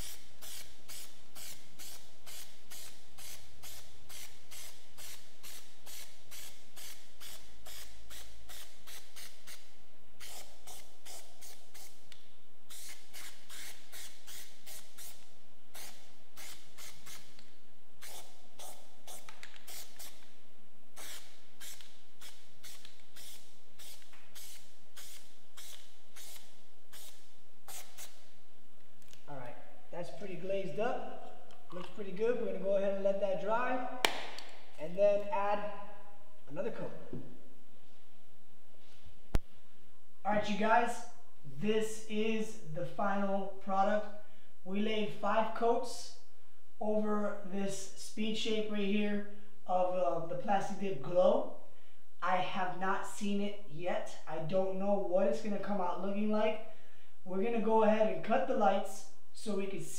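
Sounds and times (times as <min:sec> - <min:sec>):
aerosol spray can hissing: 0:00.0 - 0:12.1, 0:12.7 - 0:17.4, 0:18.0 - 0:20.3, 0:21.0 - 0:28.3.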